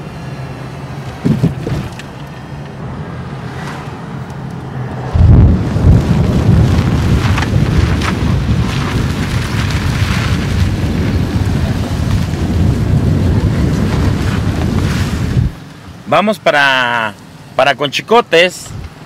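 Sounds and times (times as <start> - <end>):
wind buffeting microphone: 4.8 - 15.7.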